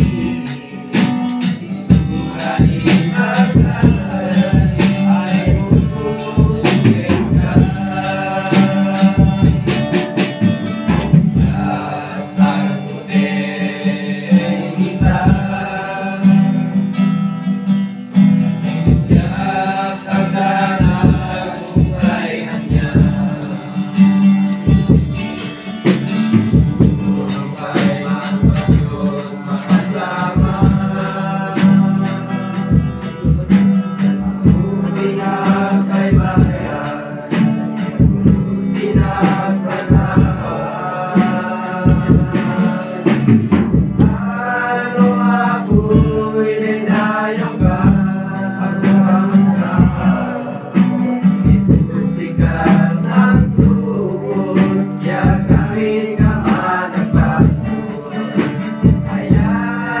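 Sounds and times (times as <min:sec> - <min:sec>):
group singing worship song: 0:00.0 - 1:00.0
strummed acoustic guitar: 0:00.0 - 1:00.0.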